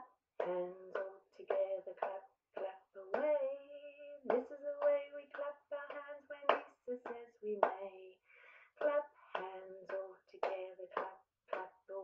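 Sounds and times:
woman singing: 0.0 - 12.0
hands clapping: 0.4 - 3.4, 4.3 - 7.9, 8.8 - 11.8.

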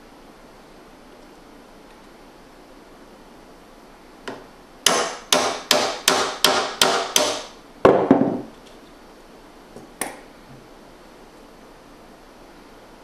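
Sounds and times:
hammer tapping metal punch: 4.3 - 8.4
dull heavy knocks: 4.9 - 8.5.

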